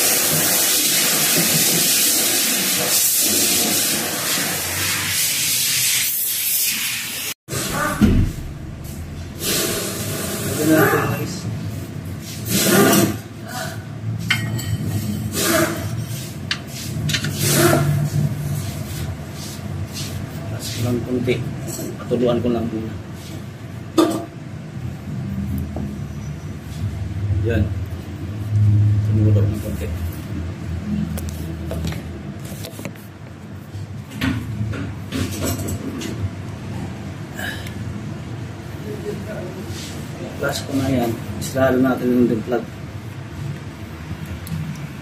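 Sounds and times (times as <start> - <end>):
steady low hum: 7.5 - 10.6.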